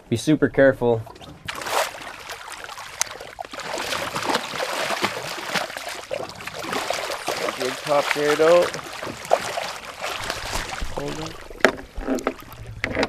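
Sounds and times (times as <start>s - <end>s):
fish thrashing and splashing water: 1.0s - 13.0s.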